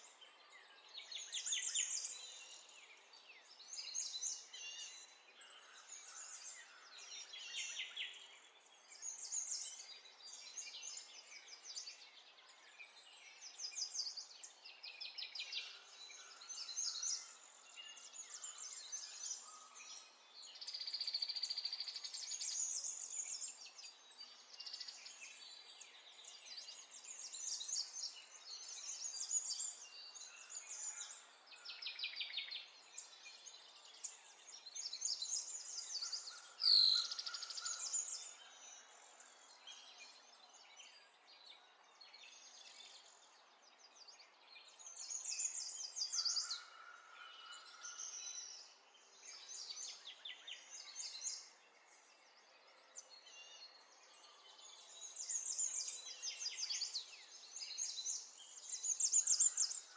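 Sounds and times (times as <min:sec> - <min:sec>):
birds chirping and trilling: 0:15.5 - 0:41.4, 0:42.0 - 0:52.2, 0:53.0 - 0:59.9.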